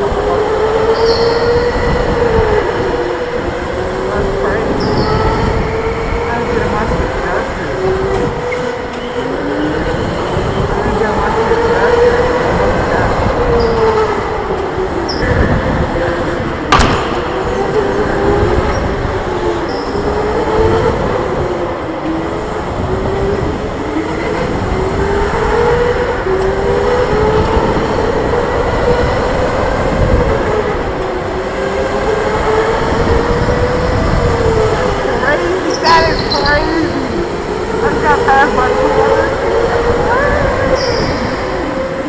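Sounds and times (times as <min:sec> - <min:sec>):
electric go-kart motor whining: 0:00.0 - 0:42.0
sharp knock: 0:16.7 - 0:17.7.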